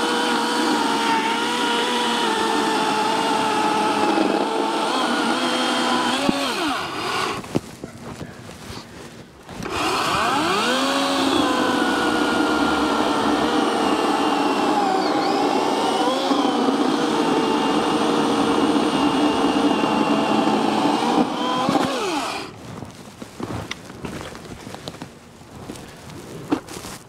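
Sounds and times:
electric chainsaw cutting log: 0.0 - 7.6, 9.5 - 22.6.

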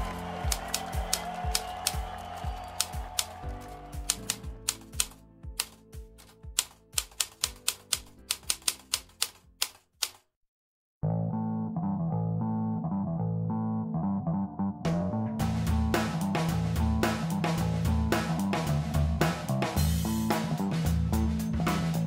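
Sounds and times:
keyboard typing clicks: 0.3 - 2.0, 2.7 - 10.3
music with bass and plucked guitar: 11.0 - 22.0.

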